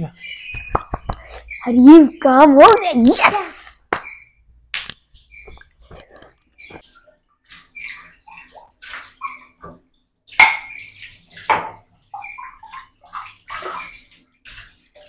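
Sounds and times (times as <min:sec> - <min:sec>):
ceramic mugs and dishes clinking: 0:10.4 - 0:10.9.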